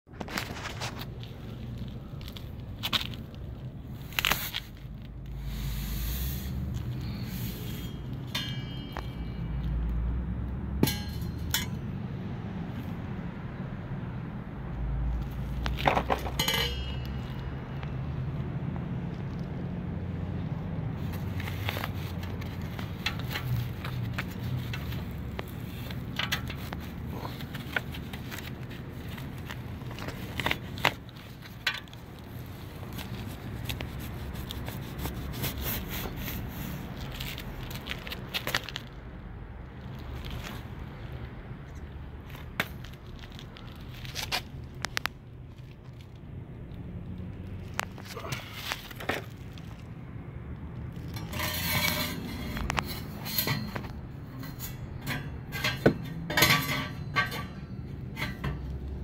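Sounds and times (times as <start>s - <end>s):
handling clicks and crinkles: 0.1s - 5.4s, 21.0s - 55.8s
packing scratching and scraping: 0.1s - 8.2s, 21.0s - 39.0s, 42.2s - 46.2s, 47.6s - 49.9s.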